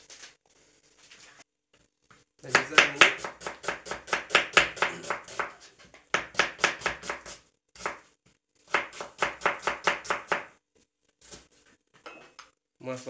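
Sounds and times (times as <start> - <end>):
knife chopping on cutting board: 2.5 - 8.0, 8.7 - 10.6.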